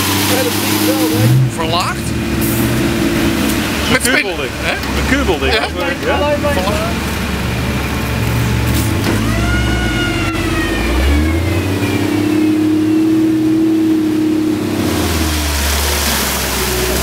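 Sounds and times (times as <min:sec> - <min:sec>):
jeep engine revving: 0:00.0 - 0:17.0.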